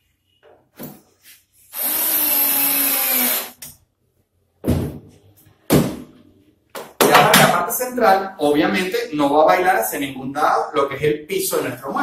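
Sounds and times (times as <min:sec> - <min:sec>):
cordless drill driving a screw: 0:01.7 - 0:03.6
thump: 0:04.6 - 0:05.1.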